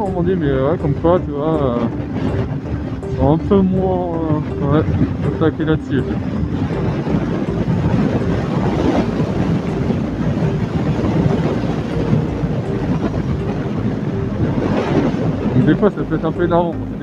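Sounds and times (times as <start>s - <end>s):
wind rush: 0.0s - 17.0s
motorcycle engine cruising: 4.3s - 15.7s.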